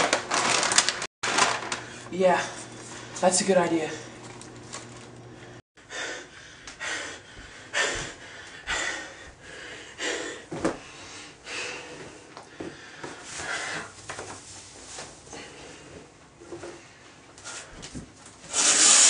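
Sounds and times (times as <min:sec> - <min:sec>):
person breathing in hissy puffs: 0:05.8 - 0:14.0, 0:17.4 - 0:17.9.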